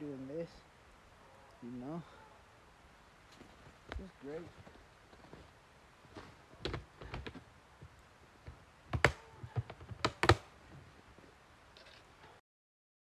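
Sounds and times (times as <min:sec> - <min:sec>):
hard objects knocking and clicking: 0:06.6 - 0:07.4, 0:08.4 - 0:10.4.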